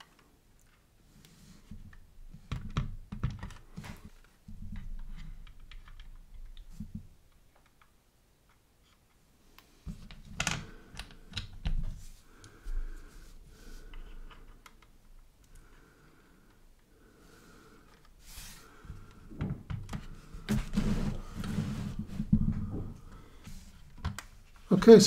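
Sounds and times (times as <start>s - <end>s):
plastic parts clicking and tapping: 1.7s - 9.2s, 9.9s - 12.0s.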